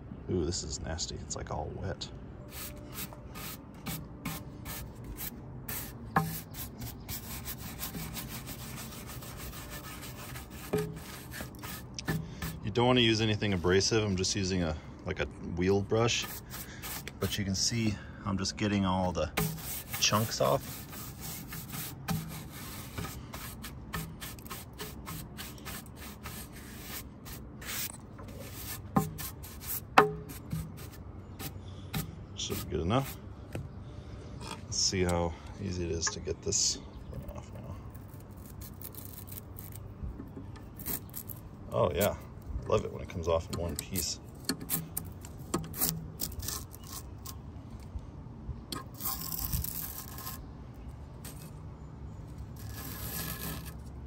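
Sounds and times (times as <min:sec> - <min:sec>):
stiff brush scrubbing ceramic rim: 0:02.5 - 0:12.7, 0:16.1 - 0:17.8, 0:18.6 - 0:33.2
sharp knocks: 0:30.0 - 0:30.7.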